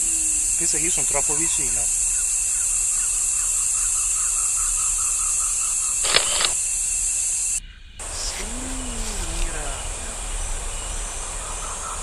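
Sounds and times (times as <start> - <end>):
high-pitched insect chorus: 0.0 - 12.0
sharp double click: 6.0 - 6.6
short repeated calls: 6.0 - 6.7.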